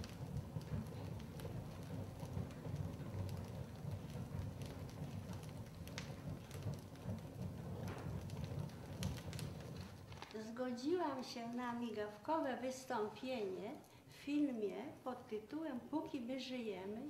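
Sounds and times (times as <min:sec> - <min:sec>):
fire flames rumbling: 0:00.0 - 0:13.3
fire crackling and popping: 0:00.0 - 0:15.0.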